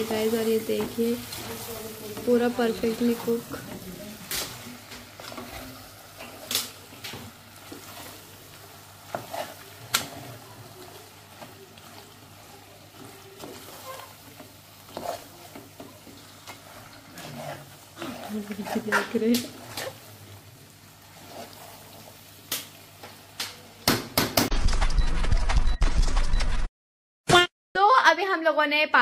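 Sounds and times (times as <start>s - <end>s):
faint sizzle: 0.0s - 23.9s
metal spoon scraping pot: 13.0s - 15.7s, 16.4s - 20.0s.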